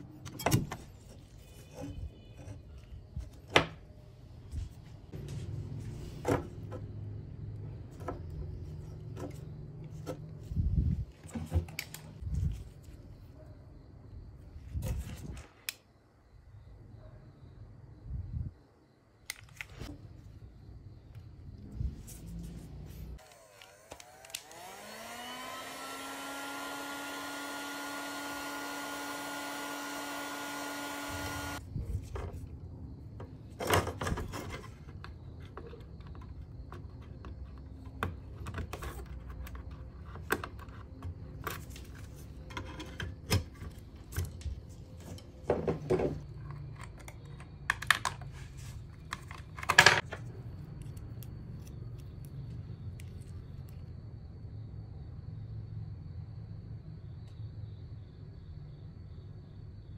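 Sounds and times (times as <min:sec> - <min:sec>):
electric blower whining: 0:23.2 - 0:31.6.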